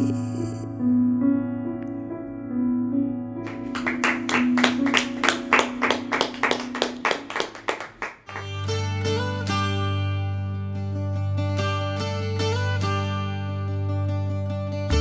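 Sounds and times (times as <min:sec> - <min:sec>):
piano playing slow notes: 0:00.0 - 0:07.4
small group clapping: 0:03.4 - 0:08.9.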